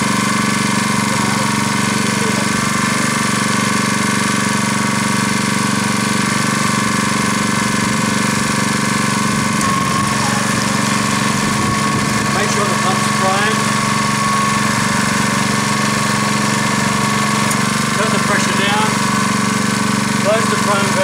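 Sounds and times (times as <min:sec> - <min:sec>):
piston pump circulating water: 0:00.0 - 0:21.0
small petrol engine running: 0:00.0 - 0:21.0.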